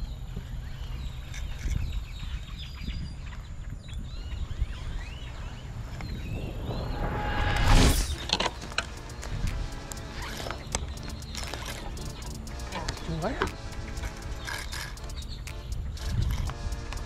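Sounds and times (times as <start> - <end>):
wind rumble on microphone: 0.0 - 10.6, 14.4 - 17.0
birds chirping and calling: 0.0 - 17.0
rushing noise: 6.1 - 17.0.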